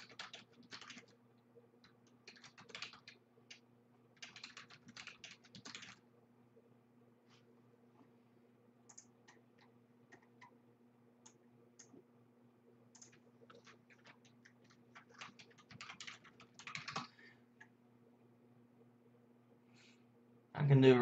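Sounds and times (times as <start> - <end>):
typing on a computer keyboard: 0.0 - 1.2, 1.8 - 3.6, 4.2 - 6.0, 8.9 - 10.5, 12.9 - 17.1
steady low hum: 0.0 - 21.0.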